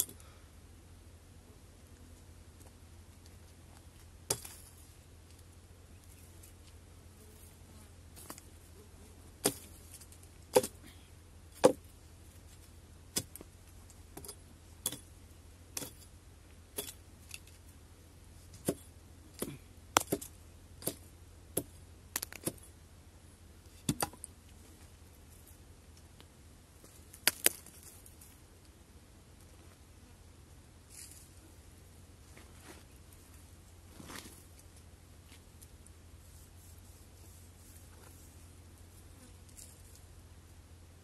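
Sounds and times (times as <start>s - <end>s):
steady low hum: 0.0s - 41.0s
axe chopping wood: 9.4s - 9.8s, 10.5s - 10.8s, 11.6s - 11.9s, 13.1s - 13.5s, 18.6s - 22.7s, 23.8s - 24.2s.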